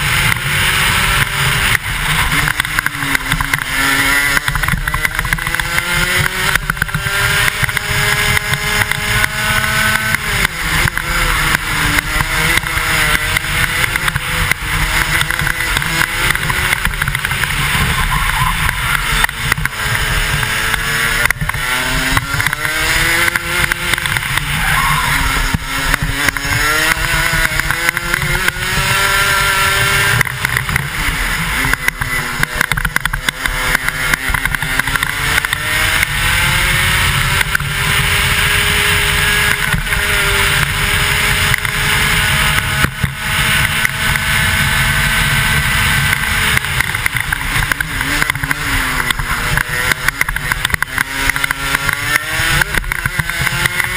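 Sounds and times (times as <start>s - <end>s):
kart engine revving: 0.0s - 53.9s.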